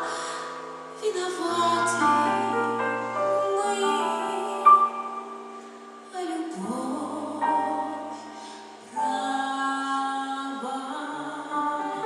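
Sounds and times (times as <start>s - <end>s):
woman singing: 0.0s - 5.1s, 6.1s - 12.0s
sustained accompaniment chords: 0.6s - 6.1s.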